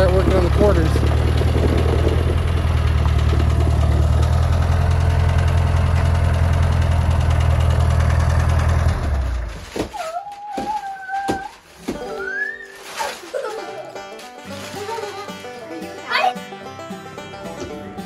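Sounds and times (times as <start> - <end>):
tractor diesel engine idling: 0.0 - 9.6.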